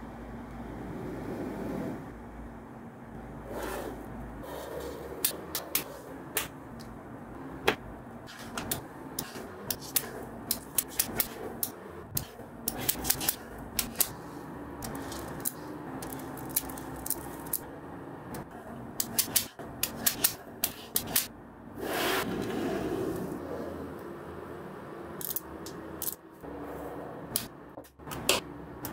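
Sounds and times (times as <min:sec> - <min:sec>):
magnetic balls clicking together: 0:08.3 - 0:17.7, 0:18.3 - 0:21.3, 0:25.2 - 0:26.2.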